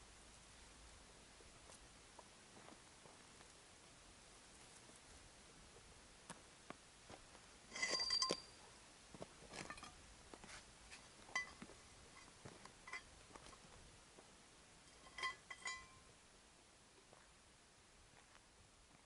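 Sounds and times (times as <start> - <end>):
metal bar striking stony ground: 7.7 - 8.6, 9.5 - 10.0, 11.3 - 13.6, 14.8 - 16.1.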